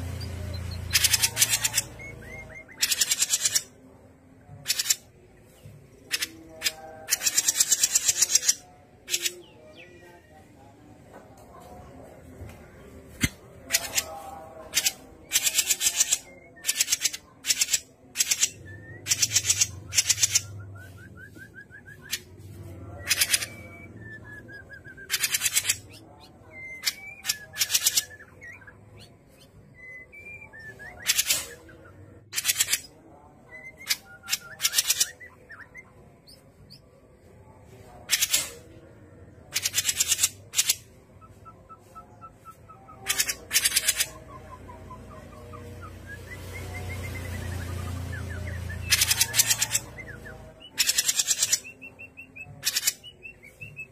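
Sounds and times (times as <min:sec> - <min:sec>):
bird rasping chatter: 0:00.9 - 0:03.7, 0:06.1 - 0:09.4, 0:13.7 - 0:20.5, 0:43.0 - 0:44.2, 0:48.8 - 0:50.1.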